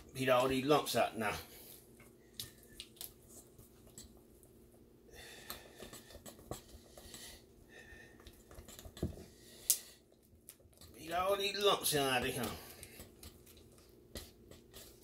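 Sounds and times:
utensil scraping metal bowl: 0:10.8 - 0:15.0.

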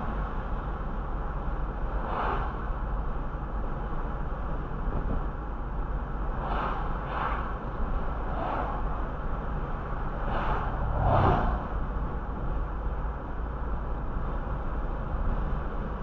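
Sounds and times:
engine and tyre rumble: 0:00.0 - 0:16.0
cars whooshing past: 0:02.0 - 0:02.6, 0:06.3 - 0:12.0.

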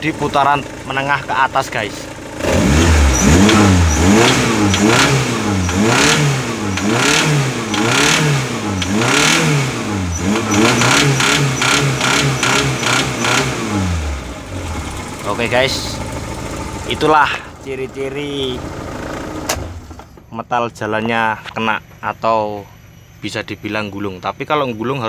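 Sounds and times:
car engine revving: 0:00.0 - 0:20.1
engine knocking rattle: 0:14.5 - 0:20.0.

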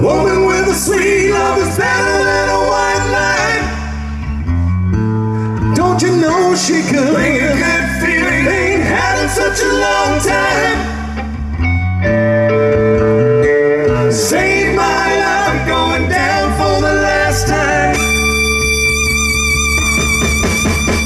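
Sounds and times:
bass and drums: 0:00.0 - 0:21.0
guitar: 0:00.0 - 0:21.0
person singing: 0:05.7 - 0:11.2, 0:13.5 - 0:19.9.

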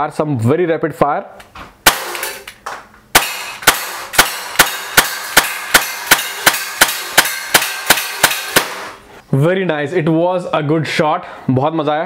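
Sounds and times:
air pistol shots ringing: 0:01.8 - 0:02.5, 0:03.1 - 0:09.0.

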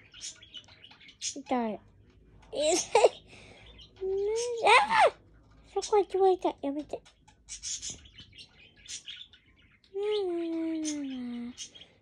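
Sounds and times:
budgerigar chirping: 0:07.3 - 0:09.6.

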